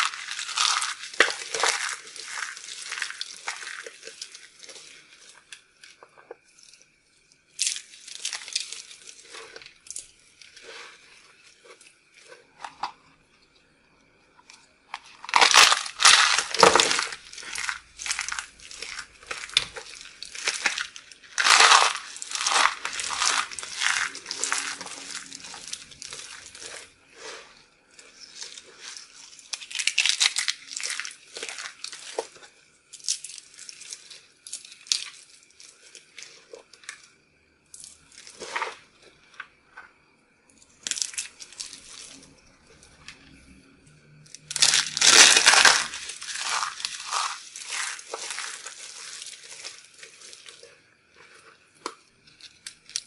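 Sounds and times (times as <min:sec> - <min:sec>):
soap crunching between fingers: 0:00.0 - 0:06.8, 0:07.4 - 0:13.0, 0:14.9 - 0:39.6, 0:40.8 - 0:43.5, 0:44.1 - 0:53.0
crinkling: 0:00.0 - 0:53.0.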